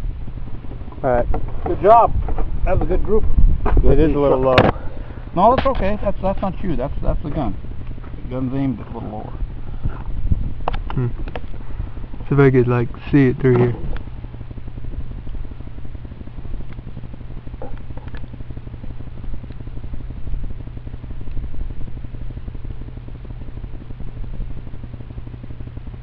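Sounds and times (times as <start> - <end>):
wind on microphone: 0.0 - 26.0
faint clicks: 17.6 - 18.4.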